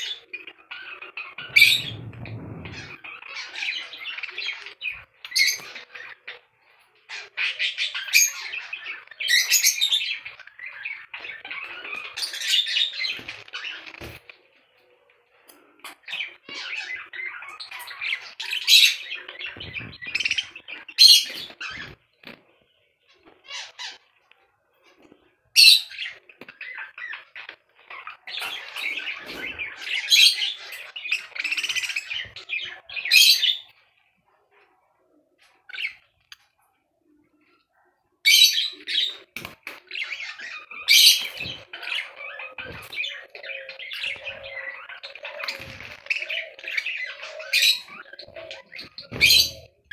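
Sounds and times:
budgerigars chattering and squawking: 0.0 - 6.5, 38.3 - 49.9.

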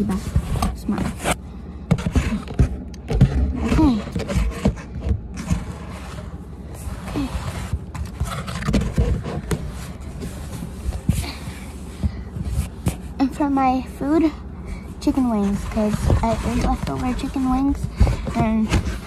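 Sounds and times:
phone handling scraping and rustling: 0.0 - 11.2.

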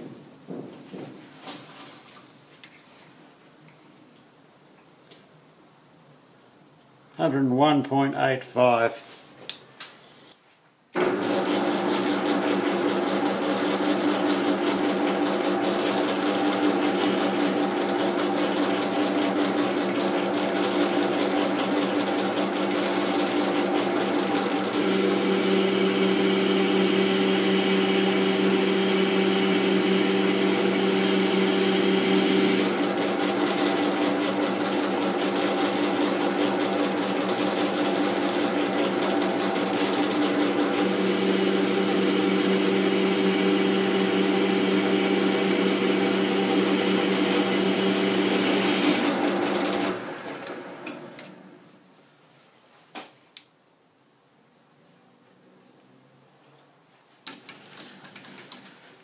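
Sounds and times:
metal lathe cutting: 11.1 - 18.8, 23.8 - 35.0, 39.5 - 50.6.

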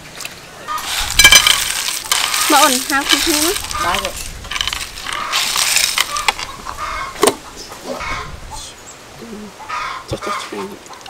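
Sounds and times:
ice cubes clinking on a plate: 0.8 - 6.5.

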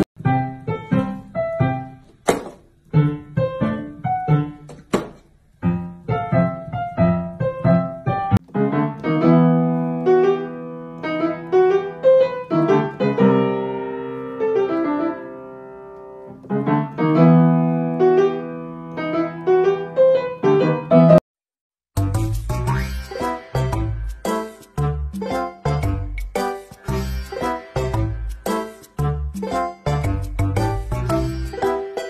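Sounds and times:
piano music: 0.0 - 2.2, 2.8 - 4.8, 5.5 - 21.2, 22.0 - 32.0
lively music with percussion: 22.0 - 32.0.

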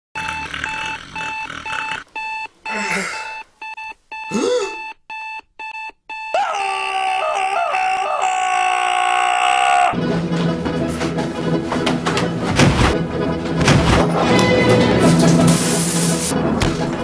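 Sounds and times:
alarm clock beeping: 0.2 - 6.5
man groaning: 4.3 - 4.8, 6.4 - 10.0
loud drawn-out cry: 6.3 - 10.0.

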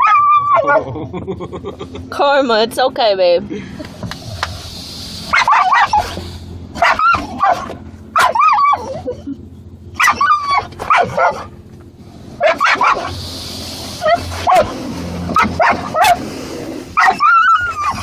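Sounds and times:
dog barking and whining: 0.0 - 1.0, 5.3 - 11.6, 12.4 - 13.2, 13.8 - 18.0.

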